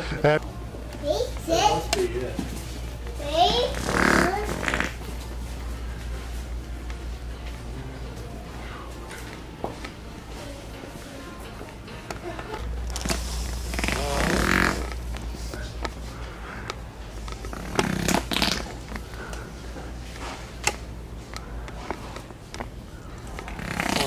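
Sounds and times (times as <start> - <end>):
low store hum: 0.0 - 24.0
wet fart noises: 3.7 - 5.1, 13.0 - 15.0, 17.4 - 19.0, 23.4 - 24.0.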